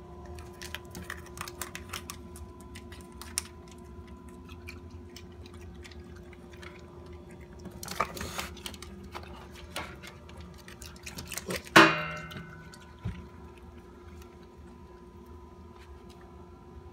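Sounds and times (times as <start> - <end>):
loud metallic clang: 11.8 - 12.5.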